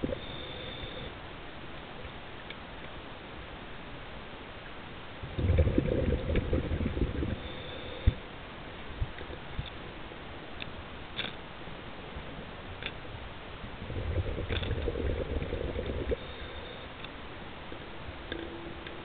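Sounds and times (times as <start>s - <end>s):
diver exhaling bubbles underwater: 5.2s - 8.2s, 13.8s - 16.6s
low underwater murmur: 13.7s - 17.0s.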